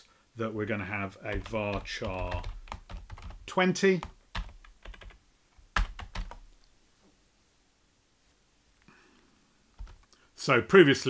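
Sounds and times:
computer keyboard keystrokes: 1.3s - 5.2s, 5.8s - 6.4s, 9.8s - 10.1s.

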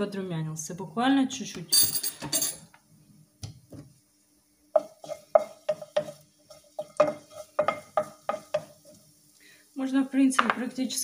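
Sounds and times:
garlic sizzling in oil: 3.7s - 11.0s
wooden spatula scraping a pan: 4.7s - 9.1s.

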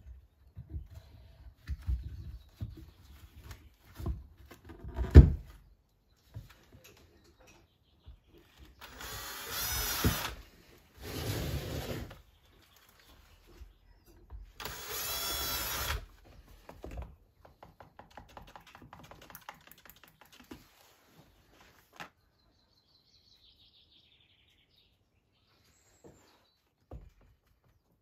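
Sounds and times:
cordless drill driving screws: 8.8s - 10.4s, 14.6s - 16.1s.

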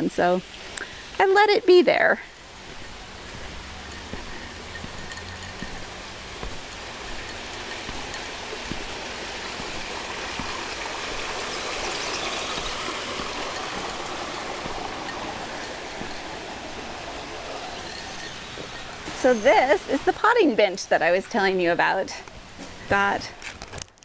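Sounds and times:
water feature running: 0.0s - 23.4s.

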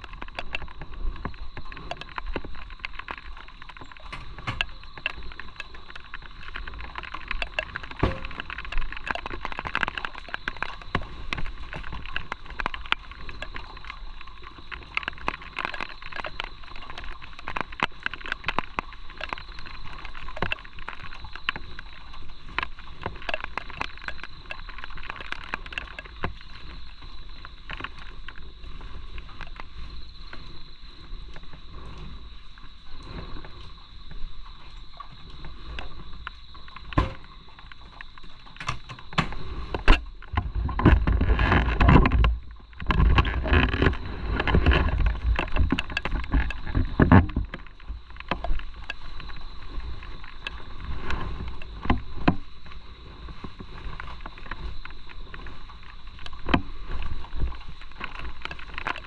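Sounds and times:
wind noise on microphone: 0.0s - 15.5s, 25.7s - 59.0s
crackling clicks: 0.0s - 59.0s
motorcycle engine rumble: 8.0s - 8.6s.

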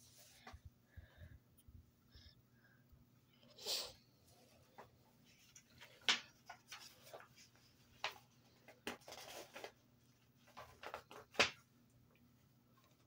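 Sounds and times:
book pages rustling: 4.4s - 11.6s.

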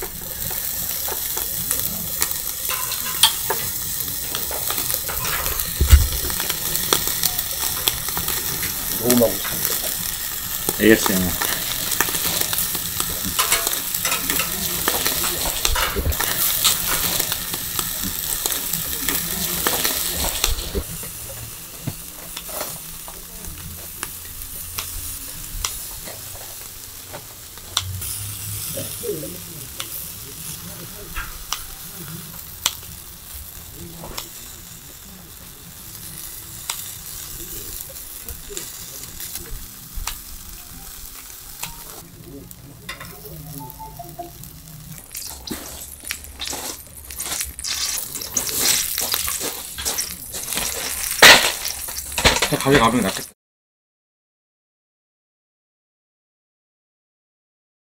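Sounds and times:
fish sizzling on grill: 0.0s - 53.4s
spatula and tongs scraping grate: 2.6s - 9.8s, 10.8s - 18.7s, 45.1s - 53.3s.

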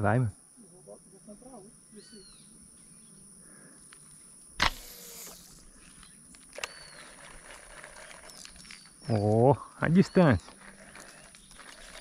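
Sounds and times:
fishing line hissing off reel: 4.6s - 8.9s.

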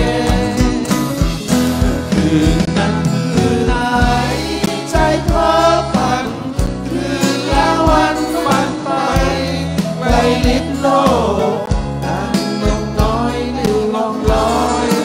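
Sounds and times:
steady drum beat: 0.0s - 15.0s
strummed acoustic guitars: 0.0s - 15.0s
man singing into a microphone: 2.0s - 5.3s, 10.0s - 15.0s.

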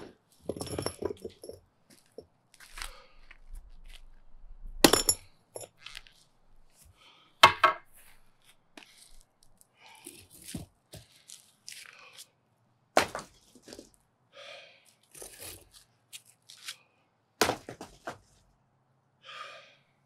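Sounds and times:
broken concrete scraping and knocking: 0.0s - 2.3s
man breathing heavily: 2.6s - 3.6s, 6.8s - 7.4s, 14.3s - 15.2s, 19.1s - 20.0s.

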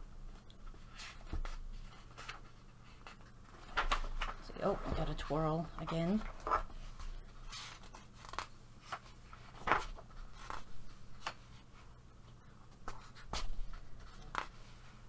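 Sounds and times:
paper pages rustling: 0.6s - 4.4s, 6.2s - 11.9s.

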